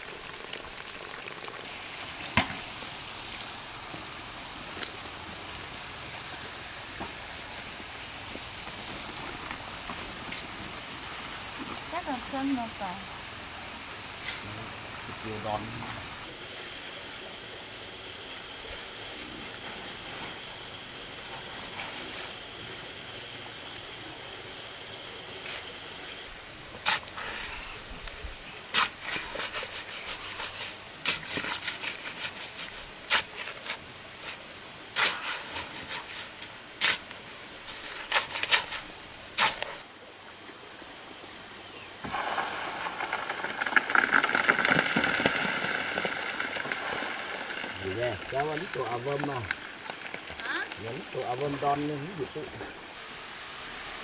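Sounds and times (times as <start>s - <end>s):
spade scraping into sand: 28.7s - 39.8s.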